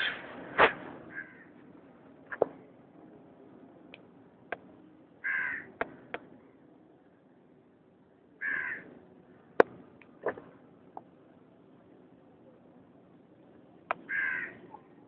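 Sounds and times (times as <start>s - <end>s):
crow cawing: 1.1s - 1.5s, 5.2s - 5.8s, 8.4s - 8.9s, 14.1s - 14.7s.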